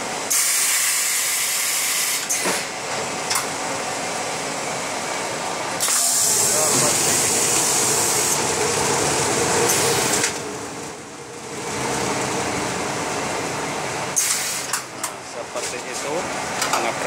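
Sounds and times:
packing machine running: 0:00.0 - 0:17.0
loud hiss: 0:05.8 - 0:08.4.

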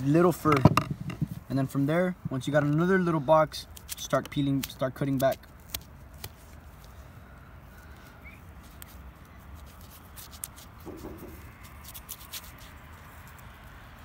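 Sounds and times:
knife scraping hide: 0:08.6 - 0:13.4.

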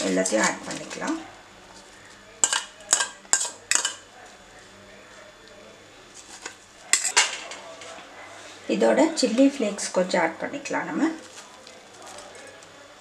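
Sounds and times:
steel dish clinking against bowl: 0:02.4 - 0:04.0, 0:07.0 - 0:07.4.

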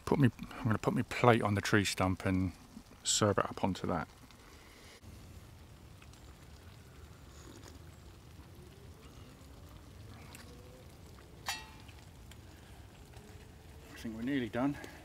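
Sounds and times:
faint low rumble: 0:04.0 - 0:15.0.

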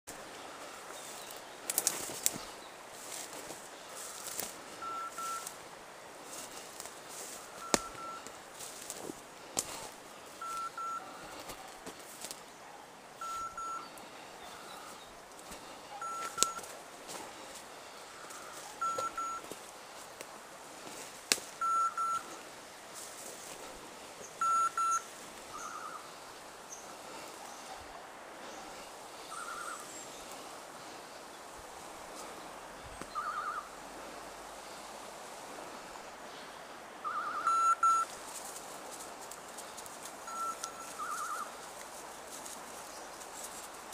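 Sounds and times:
beeper collar beeps: 0:04.8 - 0:05.5, 0:07.5 - 0:08.3, 0:10.4 - 0:11.3, 0:13.2 - 0:13.9, 0:16.0 - 0:16.7, 0:18.4 - 0:19.4, 0:21.6 - 0:22.3, 0:24.4 - 0:25.8, 0:33.2 - 0:33.7, 0:37.0 - 0:38.1, 0:40.3 - 0:41.5.

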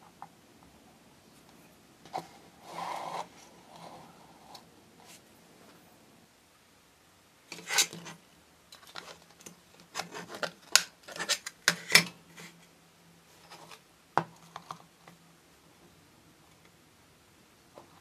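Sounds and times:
rubbing and scraping plastic: 0:07.5 - 0:08.2, 0:08.8 - 0:12.6.

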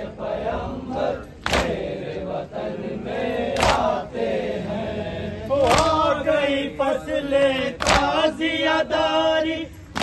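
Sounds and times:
men chanting in unison: 0:00.0 - 0:10.0.

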